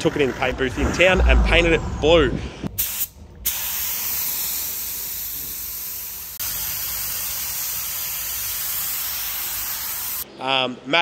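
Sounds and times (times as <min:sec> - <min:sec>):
paint spray gun hissing: 0:02.8 - 0:10.2.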